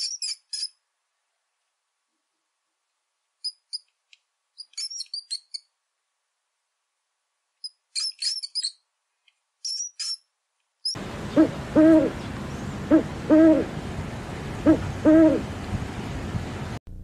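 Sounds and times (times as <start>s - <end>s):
mouse squeaking: 0.0s - 0.8s, 3.4s - 3.9s, 4.6s - 5.7s, 7.6s - 8.8s, 9.6s - 11.0s
owl hooting: 11.0s - 13.8s, 14.6s - 15.5s.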